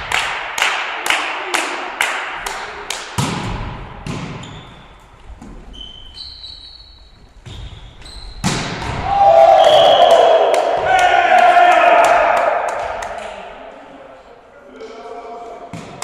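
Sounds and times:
shoes squeaking on wooden floor: 0:04.4 - 0:08.5
volleyball smacks: 0:08.4 - 0:09.2.

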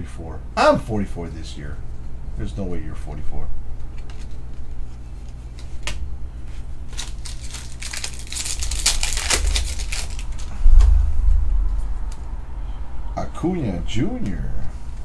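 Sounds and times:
plastic wrapper tearing and crinkling: 0:05.2 - 0:10.9
low thump: 0:10.5 - 0:12.0.

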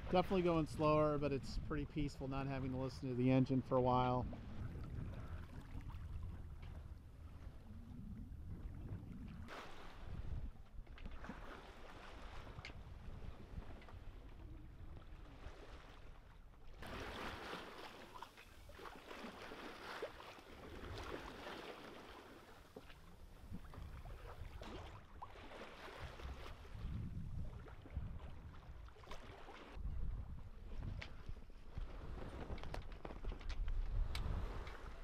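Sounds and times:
wind rumble on microphone: 0:00.0 - 0:16.4, 0:23.0 - 0:25.2, 0:25.9 - 0:29.1, 0:29.7 - 0:35.0
water rushing along a hull: 0:00.0 - 0:32.9.

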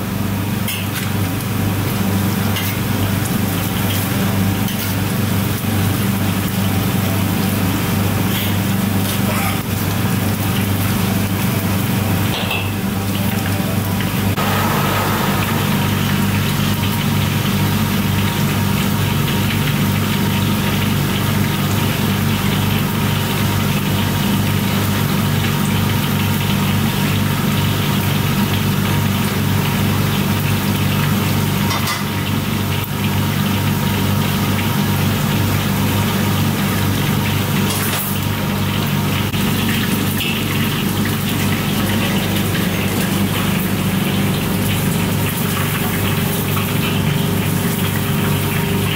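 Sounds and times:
low machine hum: 0:00.0 - 0:27.4
oil sizzling: 0:00.0 - 0:48.9.

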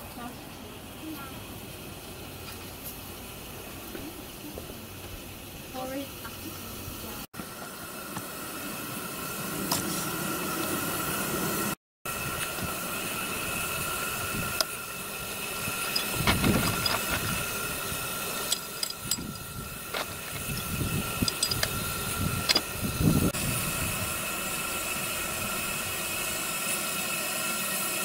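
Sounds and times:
steam locomotive hissing: 0:00.0 - 0:28.0
fire iron clicking on metal: 0:14.5 - 0:22.7.

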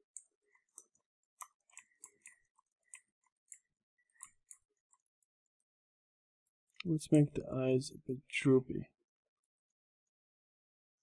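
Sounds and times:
computer mouse clicks: 0:00.0 - 0:05.1.

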